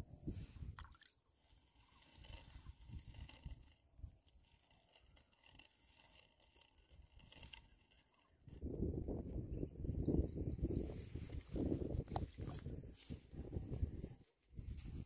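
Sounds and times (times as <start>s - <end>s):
faint scrapes knocks and clicks: 0.6s - 8.7s, 11.2s - 15.0s.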